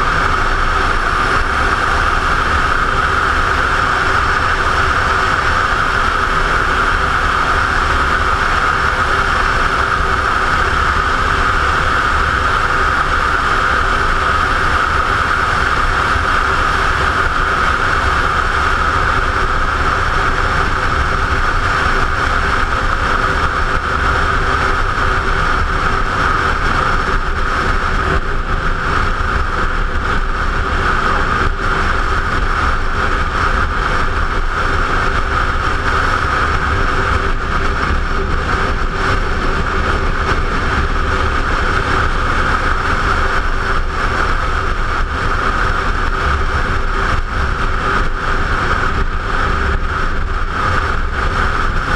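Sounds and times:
wind roar over helmet: 0:00.0 - 0:51.9.

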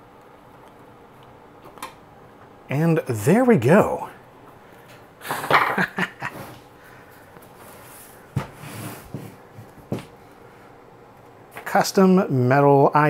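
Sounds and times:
soft shuffling: 0:06.2 - 0:10.8.

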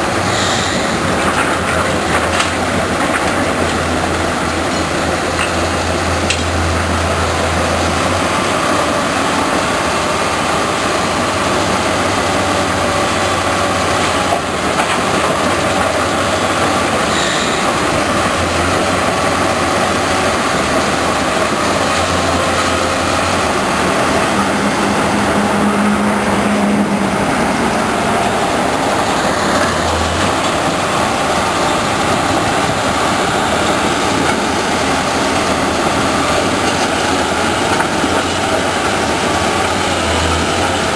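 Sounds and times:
excavator diesel engine and hydraulics: 0:00.0 - 0:40.9.

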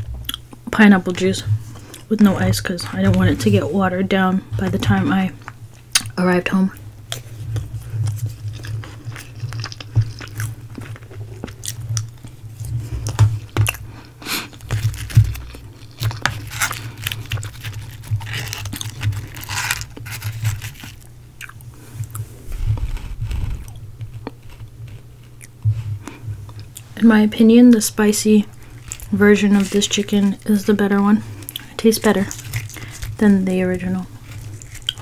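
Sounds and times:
chewing crispy chicken: 0:07.1 - 0:22.2, 0:28.5 - 0:30.6, 0:31.3 - 0:35.0
chicken crackling as torn: 0:13.1 - 0:21.1.

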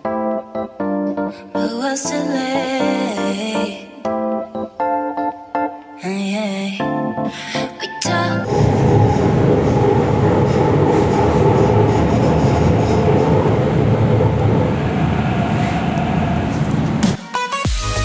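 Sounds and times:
music: 0:00.0 - 0:08.5, 0:17.0 - 0:18.0
metro train rumbling inside carriage: 0:08.4 - 0:17.0.

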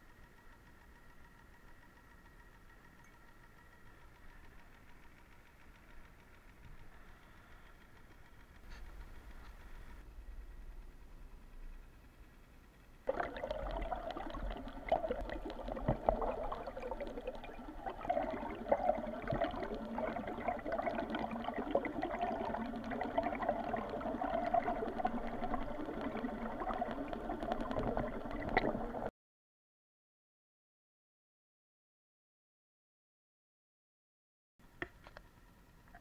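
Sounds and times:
water gurgling underwater: 0:13.1 - 0:29.1.

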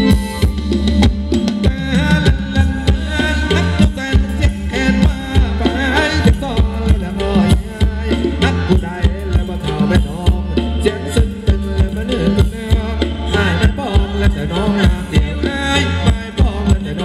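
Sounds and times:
live band playing dance music: 0:00.0 - 0:17.0
steady drum beat: 0:00.0 - 0:17.0.

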